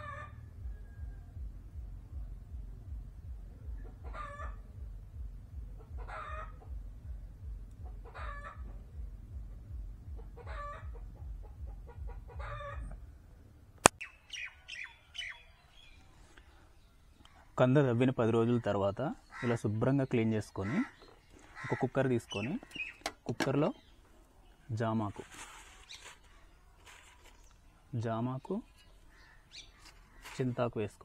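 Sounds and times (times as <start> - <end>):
chicken calling: 0.0 - 0.4, 3.8 - 4.6, 5.8 - 6.7, 7.8 - 8.8, 10.2 - 13.0
low rhythmic throb: 0.4 - 13.0
sharp click: 13.8 - 14.0.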